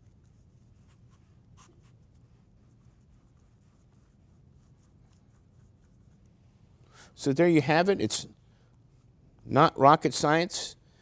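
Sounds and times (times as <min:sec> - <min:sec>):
paintbrush scratching: 0:00.0 - 0:06.6
low room hum: 0:00.0 - 0:11.0.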